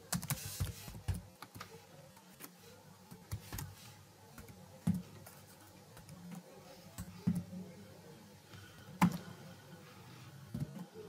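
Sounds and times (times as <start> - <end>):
computer keyboard typing: 0.0 - 1.7.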